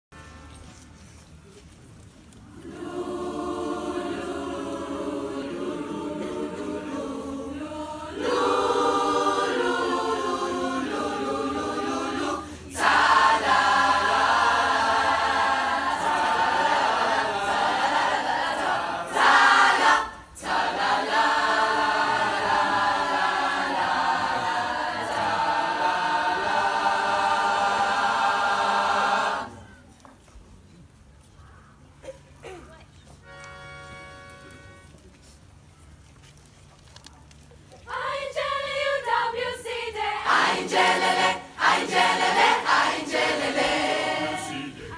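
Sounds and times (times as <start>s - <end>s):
mixed choir singing in parts: 2.5s - 29.6s, 37.9s - 44.9s.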